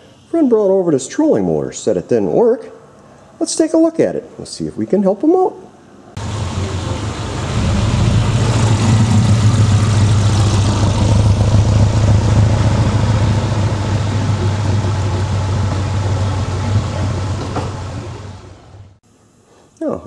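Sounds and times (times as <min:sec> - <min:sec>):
dune buggy engine running: 0:06.2 - 0:19.0.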